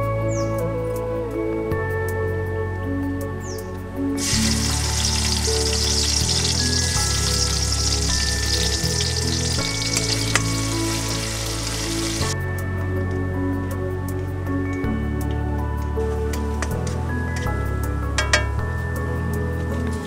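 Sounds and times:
soft background music: 0.0s - 20.0s
onions sizzling in oil: 4.2s - 12.4s
spatula stirring: 4.2s - 12.4s.

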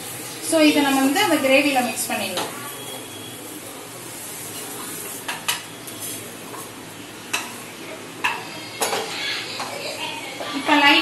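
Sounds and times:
light sizzle from pan: 0.0s - 11.0s
spatula scraping and stirring: 3.5s - 6.8s.

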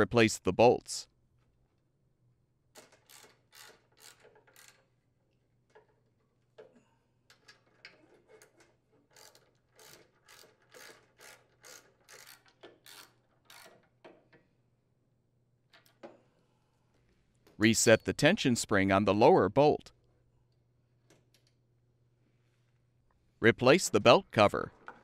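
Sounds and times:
socket ratchet clicking: 2.8s - 4.9s, 9.2s - 14.0s.

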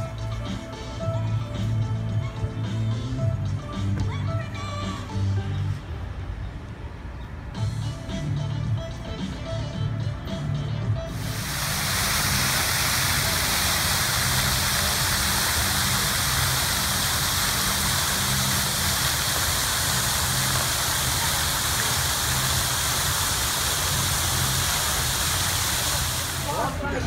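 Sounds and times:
fountain water splashing: 11.1s - 27.0s.

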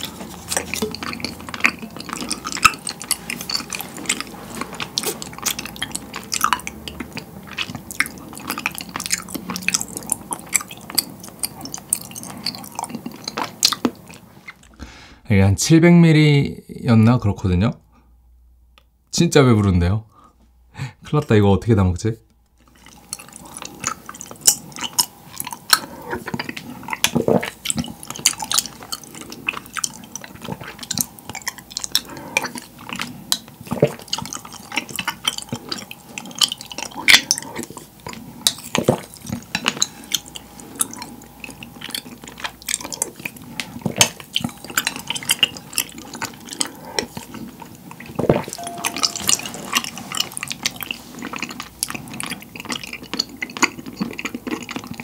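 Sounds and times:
liquid stirring and dripping: 0.0s - 13.4s
eating: 0.0s - 15.0s, 22.6s - 55.0s
spoon clinking on glass: 48.6s - 49.9s.

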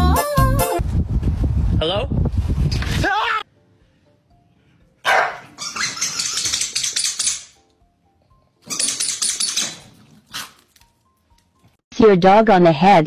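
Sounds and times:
faint background music: 3.0s - 13.0s
dog barking rapidly: 5.0s - 6.9s.

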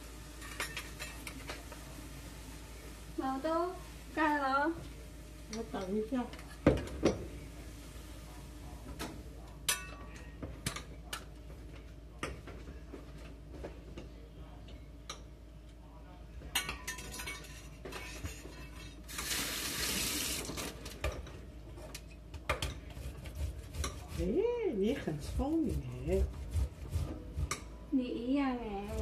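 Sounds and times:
utensils clinking against pots: 0.4s - 1.6s, 9.6s - 11.3s, 16.5s - 19.8s
kitchen tap running: 19.1s - 20.7s.

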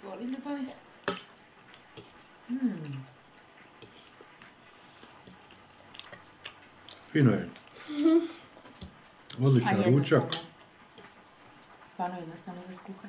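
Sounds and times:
person humming mm: 2.5s - 3.1s
chewing mouth sounds: 3.8s - 7.8s.

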